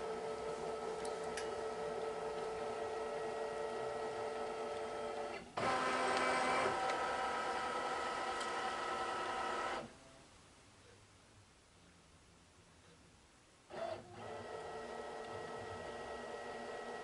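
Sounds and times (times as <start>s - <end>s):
embroidery machine motor whirring: 0.0s - 9.9s, 13.7s - 17.0s.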